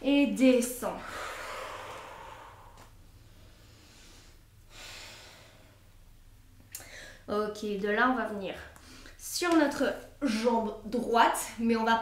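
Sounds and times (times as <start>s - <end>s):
woman exhaling: 1.0s - 2.9s.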